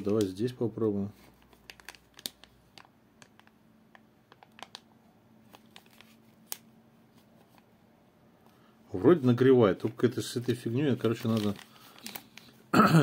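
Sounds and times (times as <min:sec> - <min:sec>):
plastic bag rustling: 0:05.4 - 0:06.6, 0:09.2 - 0:12.7.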